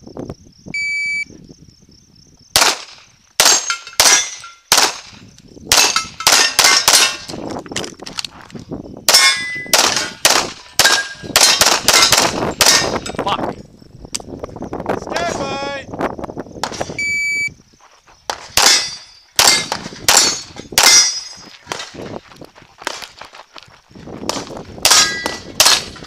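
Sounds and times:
pistol shots: 2.6s - 7.3s, 9.1s - 13.1s, 18.3s - 21.9s, 24.3s - 26.0s.

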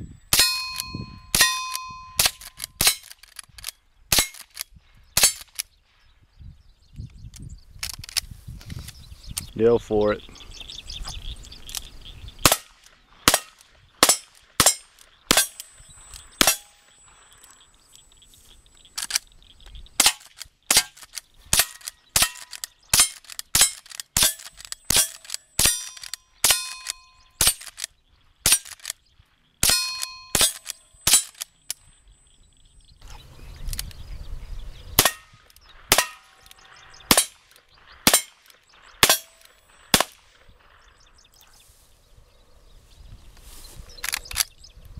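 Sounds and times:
steel target ringing ping: 0.3s - 2.4s, 29.6s - 31.2s
gunshots: 12.4s - 15.6s, 16.4s - 16.8s, 20.0s - 27.7s, 35.0s - 40.7s.

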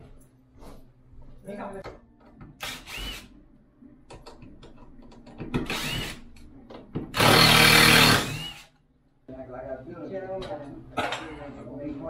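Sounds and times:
tool rasping: 5.7s - 6.2s, 7.2s - 8.7s.

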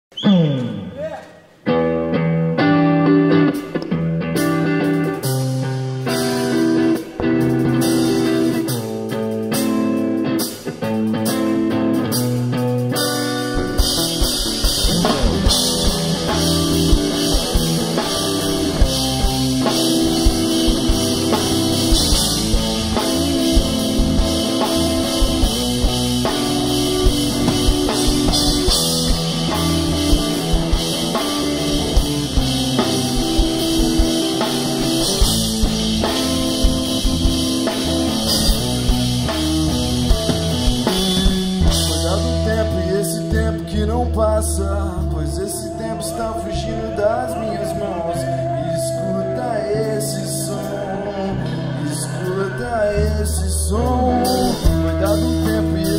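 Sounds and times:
instrumental rock band: 0.1s - 55.9s.

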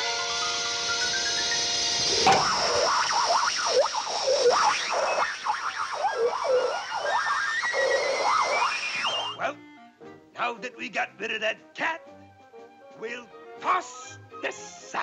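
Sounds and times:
balloon squealing as air rushes out: 0.0s - 9.4s.

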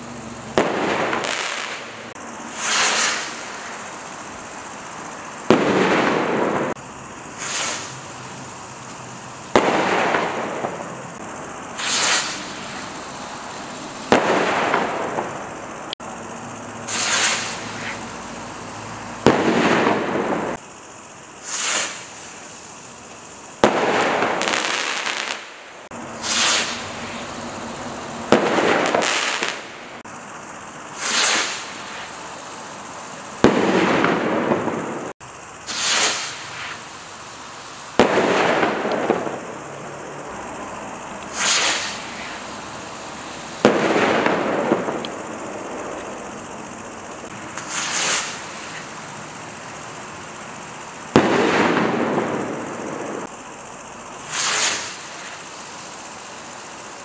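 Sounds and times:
firework bang echoing: 0.5s - 3.7s, 5.5s - 6.8s, 9.5s - 11.2s, 14.0s - 15.5s, 19.2s - 20.6s, 23.6s - 25.6s, 28.3s - 29.9s, 33.4s - 35.1s, 38.0s - 39.6s, 43.6s - 45.8s, 51.1s - 53.3s.

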